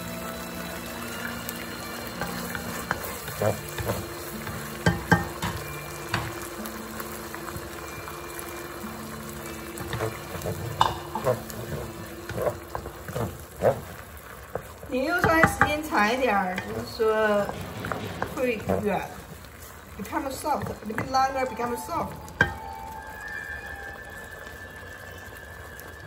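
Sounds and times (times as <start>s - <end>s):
meat sizzling in a wok: 0.0s - 26.0s
wooden spatula scraping a wok: 2.2s - 5.2s, 9.8s - 21.2s
spatula knocking against pan: 2.5s - 6.4s, 9.8s - 13.8s.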